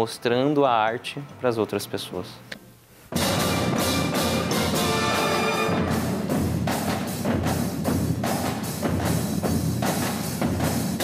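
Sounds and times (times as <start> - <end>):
brass band playing: 3.1 - 6.8
steady drum beat: 3.1 - 11.0.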